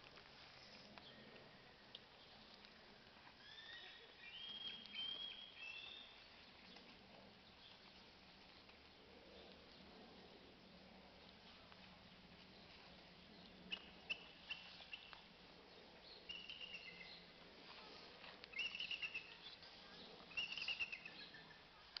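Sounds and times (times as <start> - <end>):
small birds chirping: 0.4 - 22.0.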